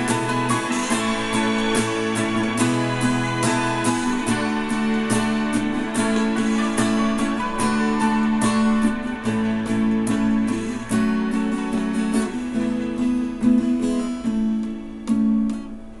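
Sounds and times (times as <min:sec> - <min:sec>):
acoustic guitar chords: 0:00.0 - 0:16.0.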